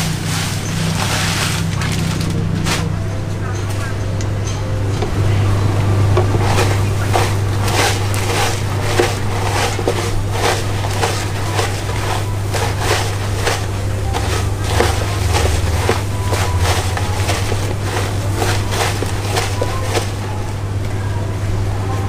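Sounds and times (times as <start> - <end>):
crunchy breadcrumb rustle: 0.0 - 3.0, 6.0 - 20.6
steady low hum: 0.0 - 22.0.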